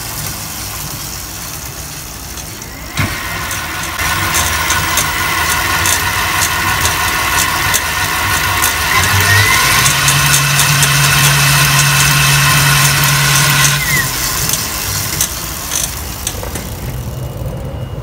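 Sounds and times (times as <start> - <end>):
electric motor whine: 2.7 - 18.0.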